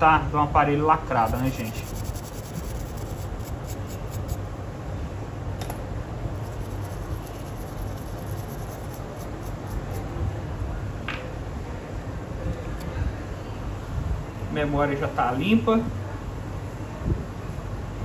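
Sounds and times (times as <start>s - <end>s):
steady low hum: 0.0s - 14.6s
small brush scratching: 1.1s - 4.5s, 6.4s - 10.1s.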